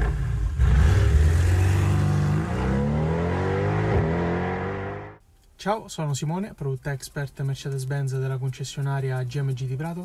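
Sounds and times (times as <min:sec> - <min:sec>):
car engine revving: 0:00.0 - 0:05.2.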